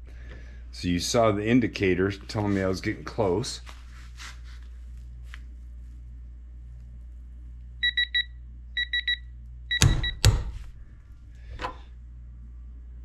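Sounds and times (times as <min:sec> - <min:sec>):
short electronic beeps: 0:07.8 - 0:10.2.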